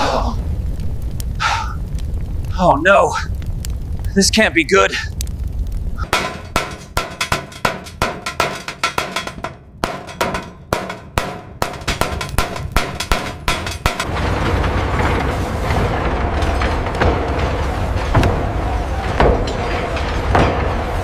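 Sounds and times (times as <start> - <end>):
low rumbling roar: 5.1 - 21.0
hammer striking hot metal: 6.0 - 21.0.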